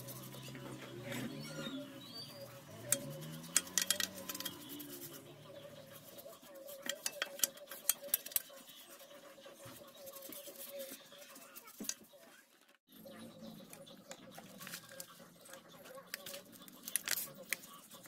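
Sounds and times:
brush scrubbing metal: 0.0s - 12.0s.

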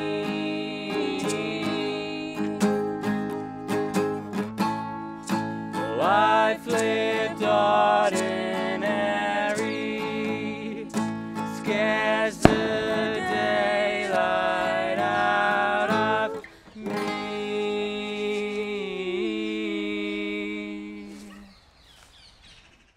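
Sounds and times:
strummed acoustic guitar: 0.0s - 17.5s
sharp click: 12.5s - 13.4s.

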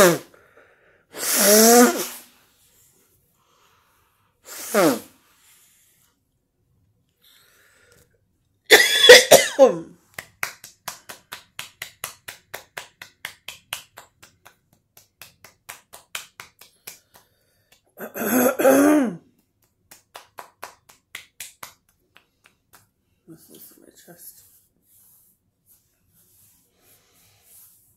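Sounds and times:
woman coughing: 8.7s - 10.0s, 18.0s - 19.2s.

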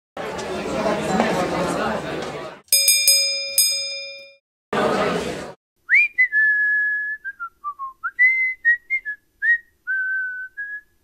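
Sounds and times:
person whistling a tune: 5.9s - 11.0s.

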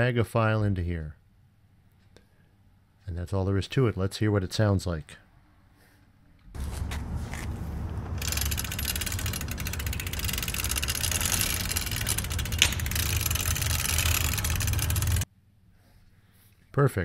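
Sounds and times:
low rumble: 6.5s - 15.2s
bike rushing noise: 6.6s - 15.2s.

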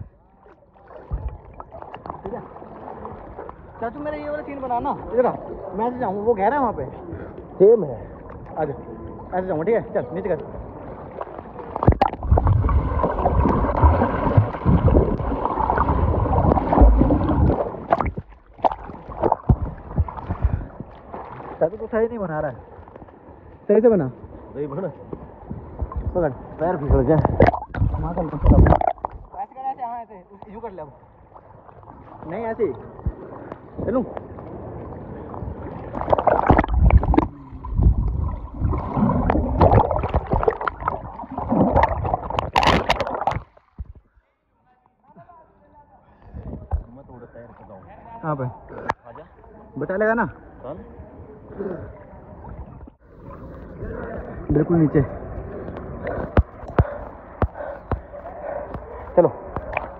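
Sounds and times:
underwater rushing and gurgling: 0.0s - 6.4s, 10.2s - 29.5s, 31.1s - 44.0s, 51.8s - 59.9s
pool water sloshing: 0.0s - 44.0s, 50.3s - 59.9s
muffled underwater gurgling: 26.8s - 29.4s, 35.1s - 43.4s.

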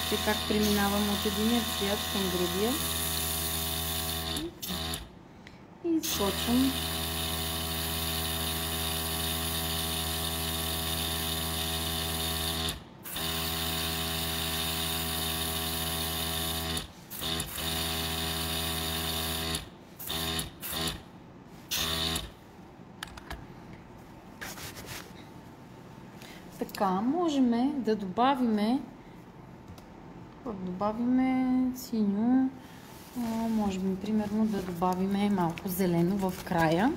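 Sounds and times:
airbrush compressor humming: 0.0s - 5.1s, 6.2s - 21.1s, 21.7s - 22.4s.

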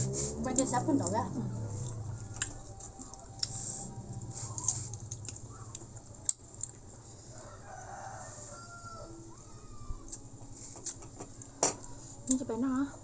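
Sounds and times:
rooster crowing: 7.2s - 10.1s.

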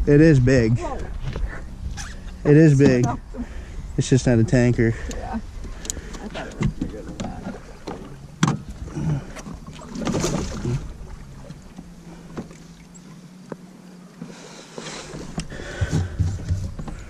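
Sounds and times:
knocks on boat floor: 15.4s - 17.0s.

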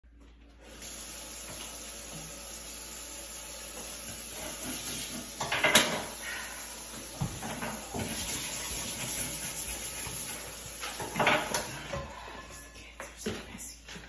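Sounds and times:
tap running into metal sink: 3.8s - 6.1s.

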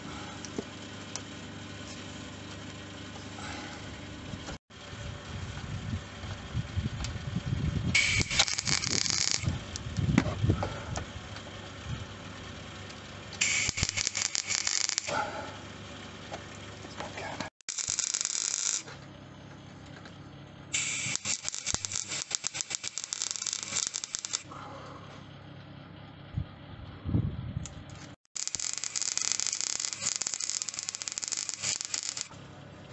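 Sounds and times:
welder arc crackling: 8.0s - 9.9s, 13.4s - 15.2s, 17.7s - 18.9s, 20.8s - 24.5s, 28.4s - 32.3s.

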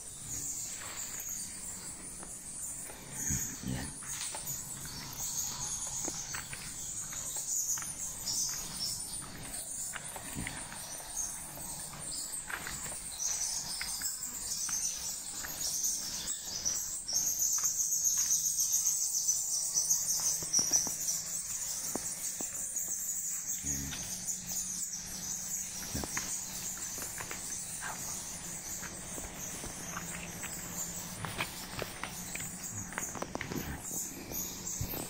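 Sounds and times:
insects chirping: 0.0s - 35.0s
footsteps on dirt: 4.0s - 18.8s, 24.0s - 35.0s.

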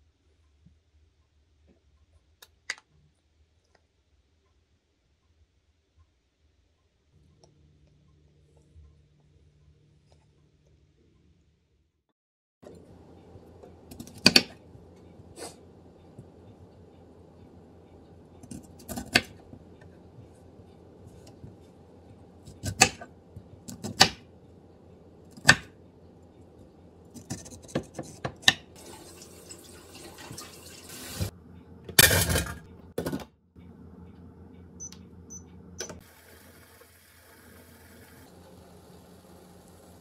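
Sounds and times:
hob touch control beeps: 34.8s - 36.0s.

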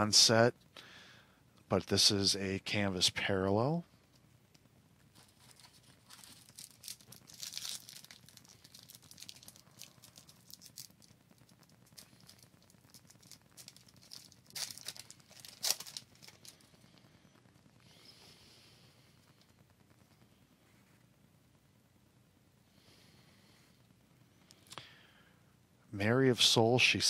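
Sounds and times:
card pack wrapper crinkling: 5.1s - 16.7s.

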